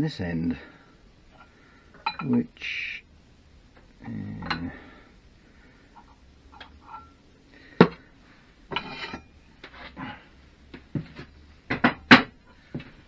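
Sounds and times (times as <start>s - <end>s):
metal-on-metal clanks: 1.4s - 2.5s, 6.0s - 7.2s, 8.7s - 9.4s
metal scraping: 6.0s - 7.2s, 8.7s - 10.2s.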